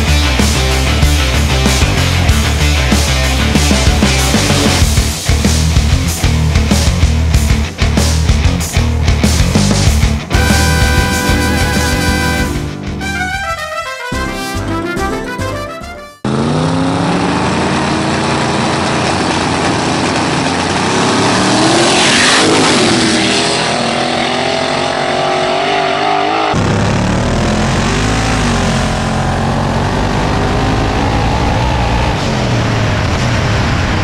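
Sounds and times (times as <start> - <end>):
race car engines revving: 0.0 - 7.3, 16.2 - 34.0
car engine pulling hard: 16.2 - 34.0
cars passing: 16.2 - 34.0.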